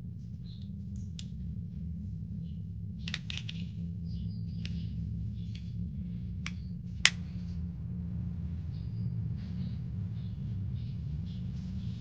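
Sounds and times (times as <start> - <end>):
steady low rumble: 0.0 - 12.0
plastic parts clicking: 3.1 - 3.7.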